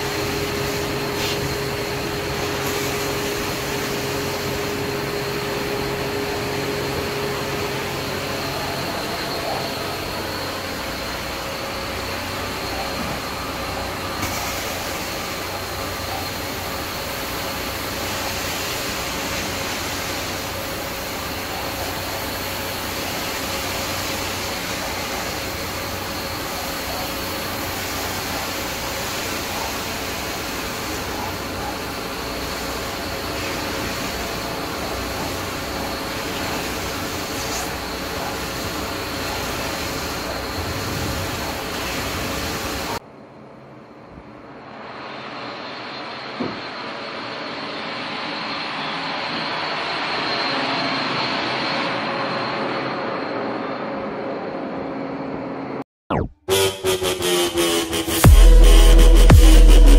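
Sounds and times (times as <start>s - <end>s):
suction air rushing: 0.0s - 21.2s
carpet extraction machine whining: 0.0s - 43.0s.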